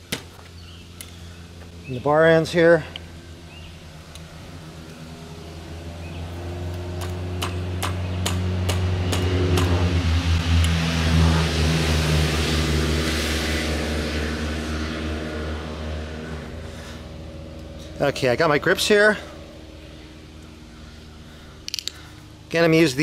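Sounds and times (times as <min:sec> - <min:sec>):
motor vehicle passing by: 0:00.0 - 0:23.0
sharp clicks: 0:21.6 - 0:22.0.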